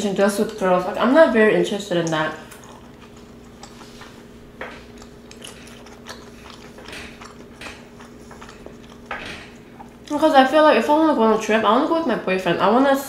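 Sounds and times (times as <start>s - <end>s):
faint steady hum: 0.0s - 13.0s
chewing and biting food: 2.1s - 10.1s.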